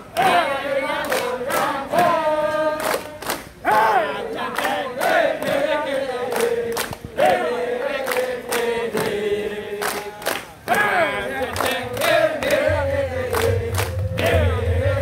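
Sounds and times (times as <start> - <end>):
men chanting in unison: 0.0 - 15.0
hand claps: 1.0 - 3.9, 4.5 - 5.7, 6.3 - 7.4, 8.0 - 9.2, 9.8 - 10.6, 11.4 - 14.5.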